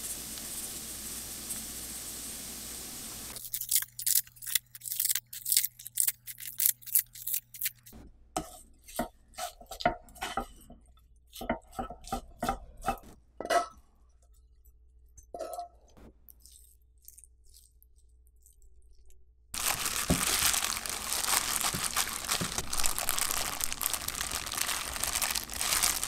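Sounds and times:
pan sizzling: 0:00.0 - 0:04.3, 0:19.6 - 0:26.0
crisp high crackles: 0:03.4 - 0:07.9, 0:19.6 - 0:26.0
spatula scraping and knocking: 0:08.4 - 0:13.8.

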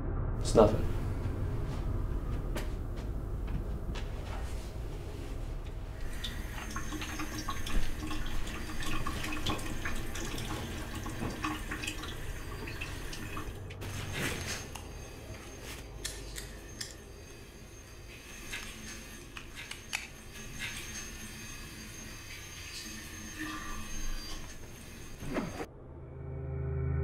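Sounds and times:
water running from a sink tap: 0:06.0 - 0:13.6
water splashing and dripping: 0:06.0 - 0:13.9.

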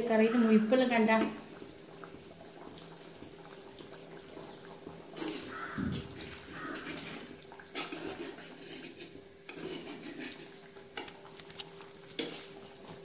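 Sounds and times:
spoon scraping clay pot: 0:06.1 - 0:10.7, 0:12.2 - 0:12.5.

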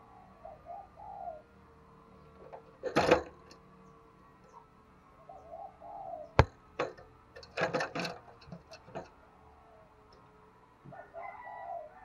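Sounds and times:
dove cooing: 0:00.0 - 0:03.5, 0:04.4 - 0:06.8, 0:10.8 - 0:12.0.

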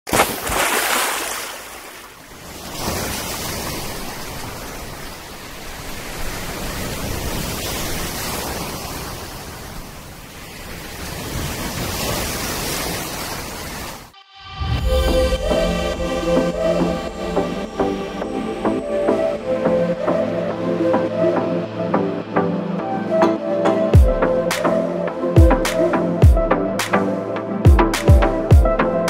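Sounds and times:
small waves splashing: 0:00.1 - 0:14.2.

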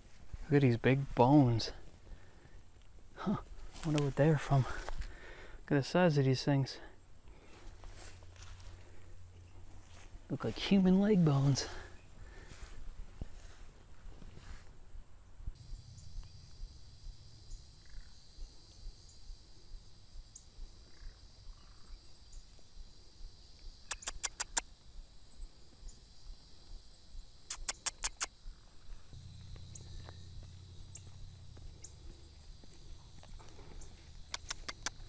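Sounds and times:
insect drone: 0:00.0 - 0:35.0
low rumble: 0:15.5 - 0:20.2, 0:29.0 - 0:33.9
rapid sharp chirps: 0:23.7 - 0:24.7, 0:27.4 - 0:28.6.

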